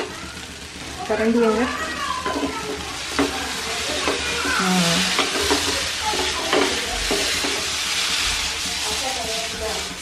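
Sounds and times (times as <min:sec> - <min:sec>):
food sizzling in hot oil: 0:00.0 - 0:10.0
spatula scraping a frying pan: 0:01.5 - 0:10.0
spatula knocking against pan: 0:04.0 - 0:07.7.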